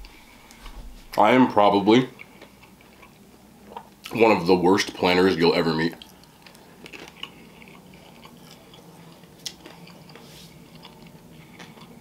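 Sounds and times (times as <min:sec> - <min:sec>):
person chewing: 0:02.1 - 0:04.2, 0:05.8 - 0:12.0.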